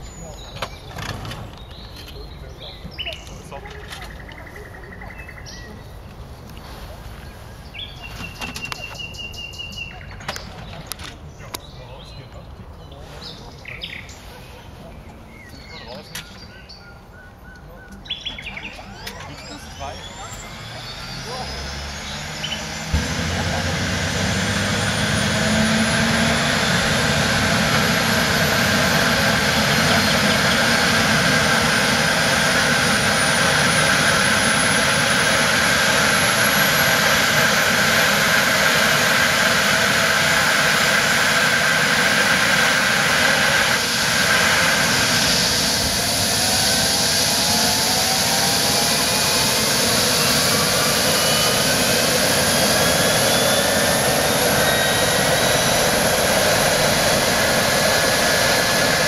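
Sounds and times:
helicopter turbine spooling up: 14.6s - 59.0s.

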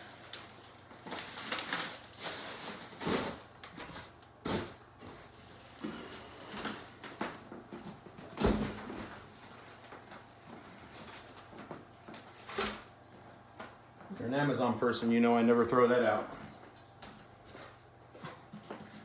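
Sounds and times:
plastic packaging crinkling: 0.0s - 4.2s.

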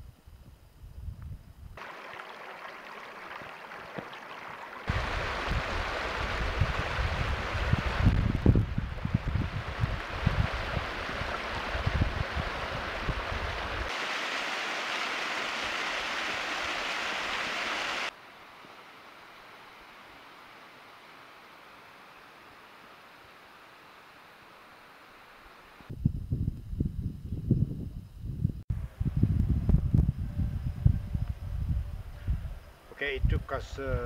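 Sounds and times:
wind rumble on microphone: 0.0s - 1.8s, 4.9s - 13.9s, 25.9s - 34.0s
small cascade rushing: 1.8s - 18.2s
stream splashing over rocks: 1.8s - 18.2s.

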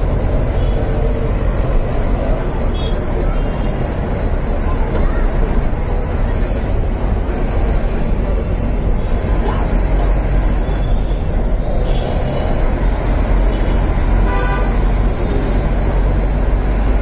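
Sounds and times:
bus engine rumble: 0.0s - 17.0s
road noise: 0.0s - 17.0s
vehicle horn honk: 14.2s - 14.8s.

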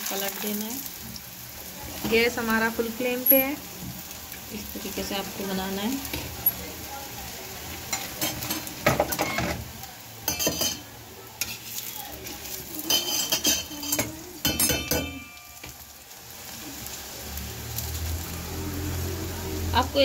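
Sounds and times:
bread sizzling in oil: 0.0s - 20.0s
steel spoon scraping a griddle: 10.3s - 15.8s.

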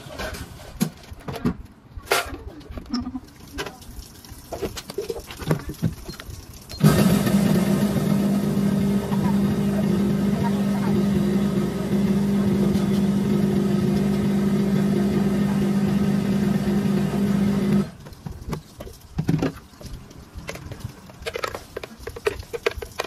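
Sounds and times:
blender motor running: 6.8s - 17.9s.

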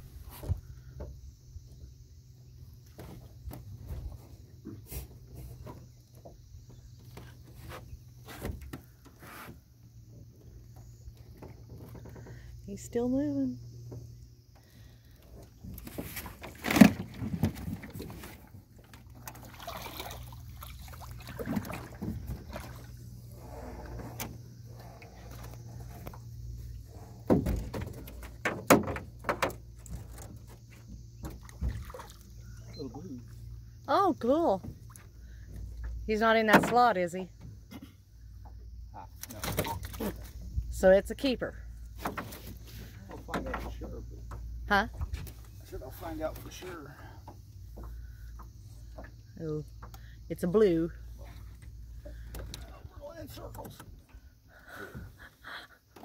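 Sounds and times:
knocks on small boat: 27.1s - 31.9s.

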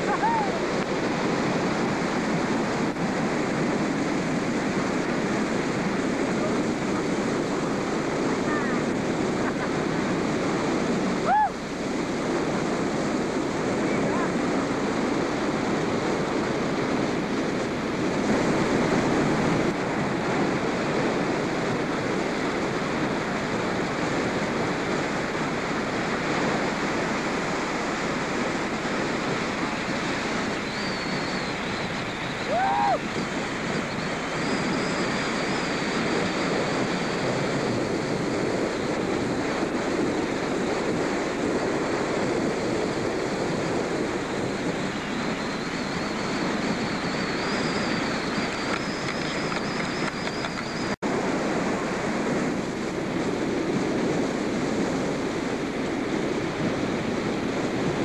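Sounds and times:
wind noise on microphone: 0.0s - 58.0s.

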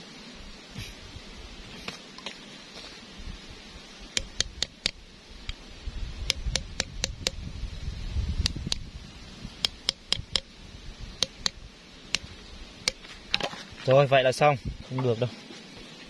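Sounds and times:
hammer tapping on steel rod: 4.1s - 5.6s, 6.2s - 7.4s, 9.6s - 10.5s, 11.2s - 13.0s.

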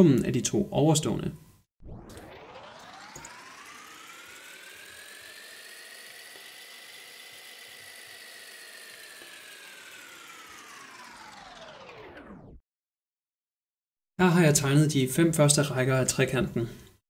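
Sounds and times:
rising whir sound effect: 1.8s - 12.6s.

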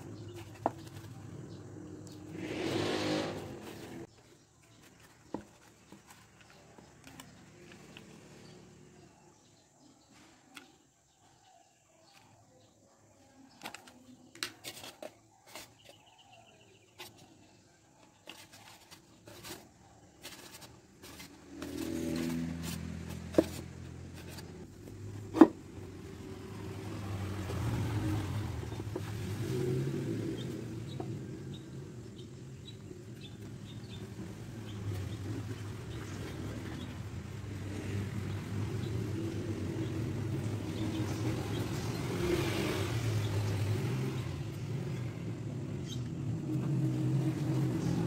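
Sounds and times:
engine running: 0.0s - 4.1s.

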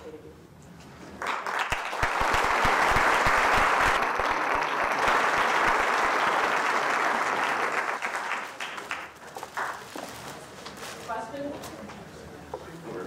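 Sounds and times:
audience applauding: 1.2s - 9.9s.

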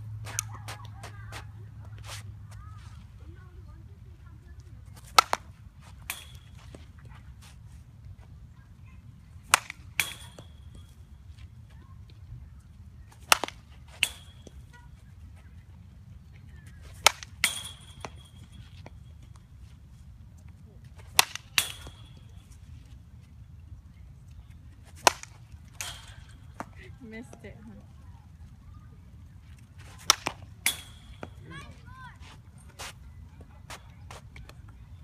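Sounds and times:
bat cracking against ball: 4.9s - 6.8s, 9.4s - 10.9s, 13.1s - 14.7s, 16.9s - 19.0s, 21.0s - 22.4s, 24.9s - 26.8s, 29.8s - 31.5s
crack with metallic ring: 13.3s - 14.5s, 30.1s - 31.4s.

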